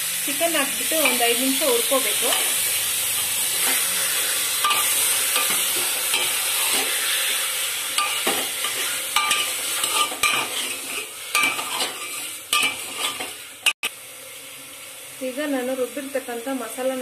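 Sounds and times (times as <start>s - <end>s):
chicken sizzling in a pot: 0.0s - 17.0s
ladle scraping and knocking pot: 8.0s - 13.4s.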